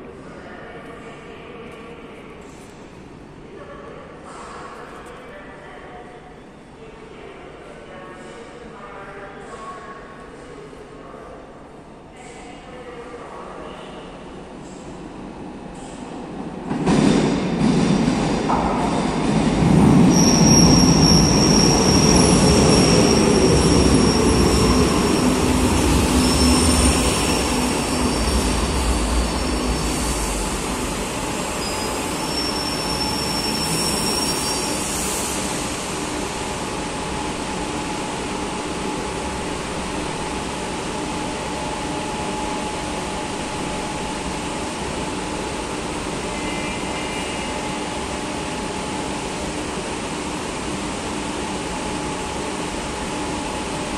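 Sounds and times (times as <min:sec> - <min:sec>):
train rumbling and braking: 0:13.7 - 0:53.9
high thin brake squeal: 0:31.6 - 0:34.9.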